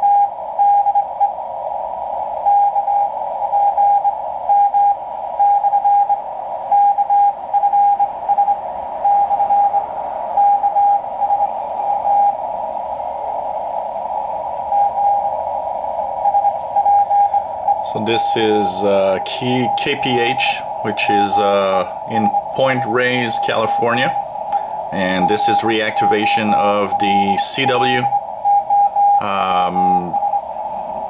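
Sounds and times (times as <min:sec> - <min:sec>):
static hiss: 0:00.0 - 0:31.0
morse code tone: 0:14.1 - 0:30.6.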